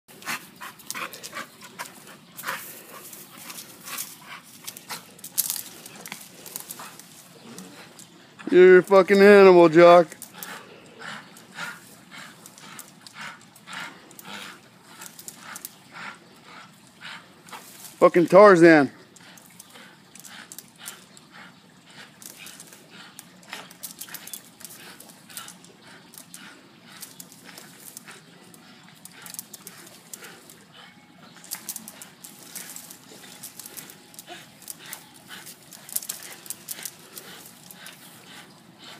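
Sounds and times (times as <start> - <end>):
dog panting and whimpering: 0.1 - 18.0, 19.0 - 38.9
rustles and clicks: 31.3 - 38.9.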